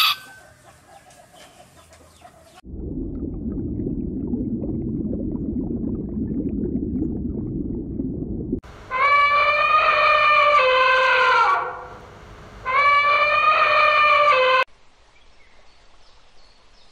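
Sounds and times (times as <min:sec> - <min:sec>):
underwater rumbling and bubbling: 0:02.6 - 0:08.6
elephant trumpeting: 0:08.9 - 0:11.9, 0:12.7 - 0:14.6.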